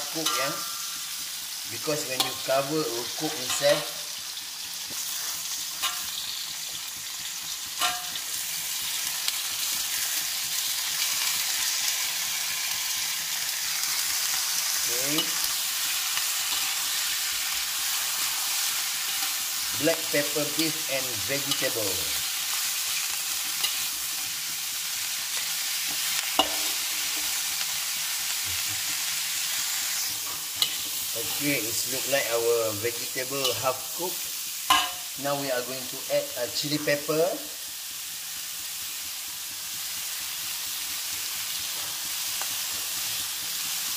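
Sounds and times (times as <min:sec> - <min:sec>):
metal spatula scraping wok: 0:00.0 - 0:04.0, 0:05.0 - 0:06.6, 0:07.8 - 0:08.5, 0:14.0 - 0:34.0, 0:34.7 - 0:35.2
food sizzling in a wok: 0:00.0 - 0:43.9
spatula knocking against wok: 0:34.7 - 0:35.1.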